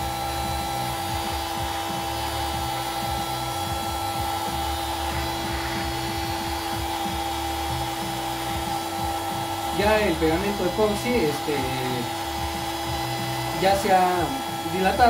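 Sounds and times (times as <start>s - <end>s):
heat gun fan whine: 0.0s - 15.0s
hot air rushing: 4.0s - 9.0s.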